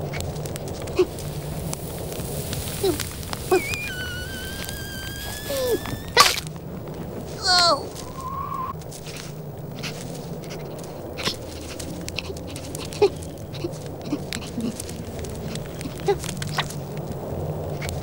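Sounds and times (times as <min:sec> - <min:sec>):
cartoon squeaks and clicks: 0:03.4 - 0:06.5.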